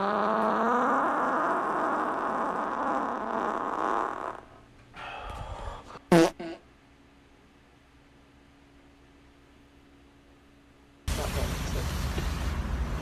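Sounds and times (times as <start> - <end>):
farts: 0.0 - 4.6, 6.1 - 6.6.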